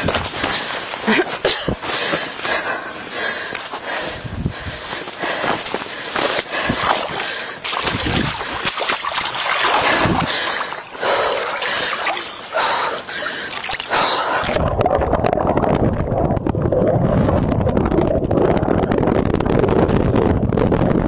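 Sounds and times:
water splashing and sloshing: 5.6s - 18.0s
muffled underwater rush: 6.9s - 21.0s.

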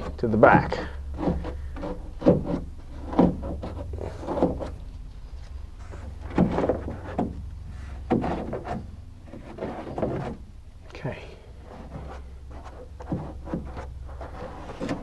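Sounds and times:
hook tool scraping cloth: 0.0s - 4.8s
low steady hum: 0.0s - 15.0s.

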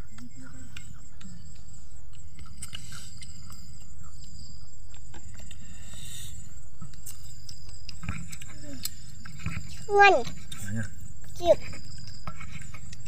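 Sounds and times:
high insect-like chirp: 0.0s - 13.0s
chewing: 2.1s - 13.0s.

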